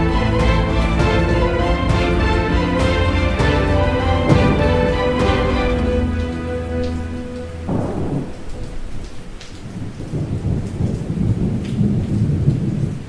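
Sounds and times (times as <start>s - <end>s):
soft melody: 0.0s - 9.5s
rain falling: 0.0s - 13.0s
low rolling thunder: 3.5s - 13.0s.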